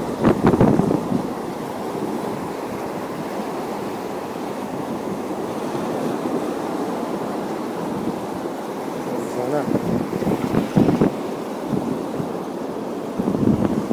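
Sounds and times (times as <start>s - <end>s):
wind on microphone: 0.0s - 3.4s, 9.1s - 13.9s
water washing at shore: 0.0s - 13.9s.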